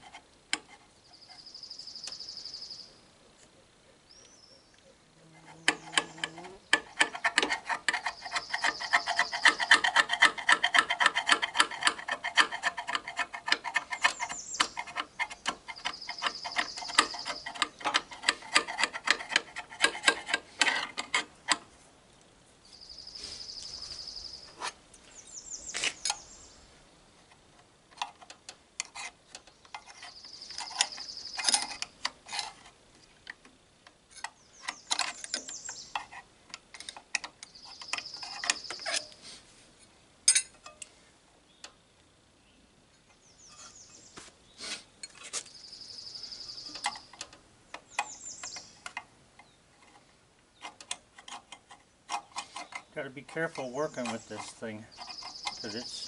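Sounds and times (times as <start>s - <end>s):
screwdriver scraping metal blades: 5.4s - 21.6s, 28.0s - 32.8s, 34.1s - 39.2s, 50.6s - 56.0s
bird trilling: 54.9s - 56.0s.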